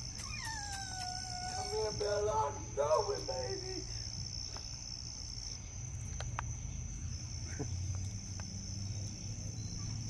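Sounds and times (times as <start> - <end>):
night insects trilling: 0.0 - 10.0.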